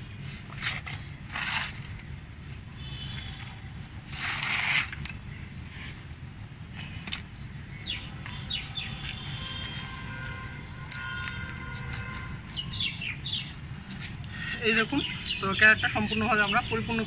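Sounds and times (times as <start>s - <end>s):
hands scraping soil: 0.1s - 2.1s, 3.2s - 5.3s
bird chirps: 12.2s - 13.6s.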